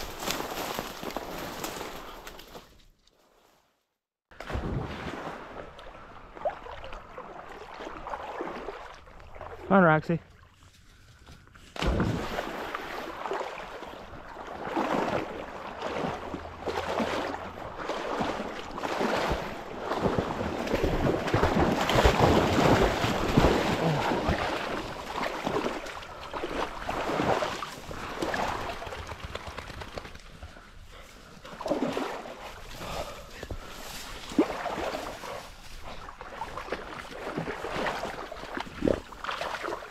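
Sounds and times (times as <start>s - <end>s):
brush rustling and crackling: 0.0s - 3.4s.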